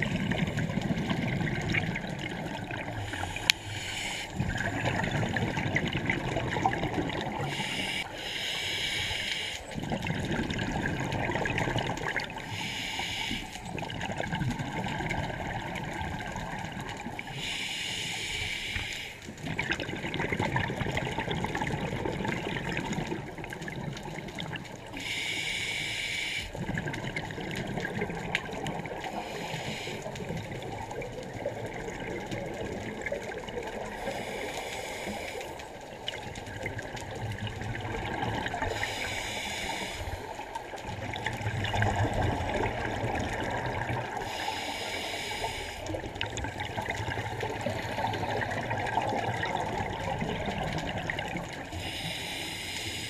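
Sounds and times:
underwater bubbling: 0.0 - 53.0
scuba regulator hissing inhale: 2.9 - 4.8, 7.4 - 9.7, 12.4 - 13.7, 17.2 - 19.2, 25.0 - 26.6, 29.0 - 30.3, 33.8 - 35.6, 38.6 - 40.6, 44.2 - 46.2, 51.7 - 53.0.

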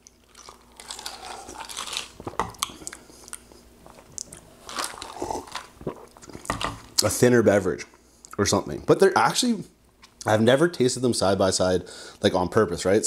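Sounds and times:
person chewing ice cubes: 0.0 - 6.9.

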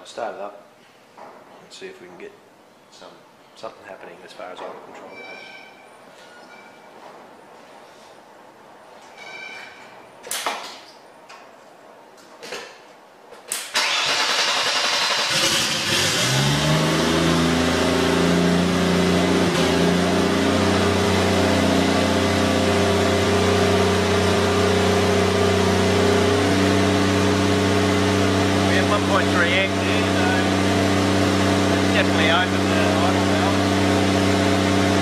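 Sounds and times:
car engine starting and idling: 13.5 - 35.0.

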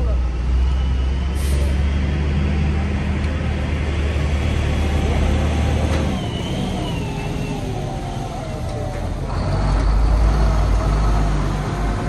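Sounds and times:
heavy engine droning: 0.0 - 12.0.

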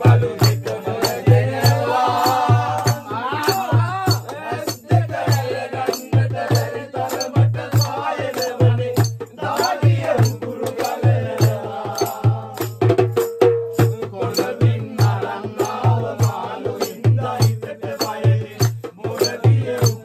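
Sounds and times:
hand-played percussion: 0.0 - 20.0
men singing: 0.0 - 20.0
hand claps: 0.4 - 4.8, 6.5 - 11.7.

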